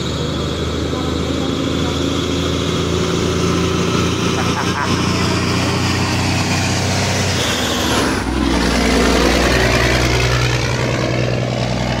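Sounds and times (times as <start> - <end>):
truck diesel engine passing: 0.0 - 12.0.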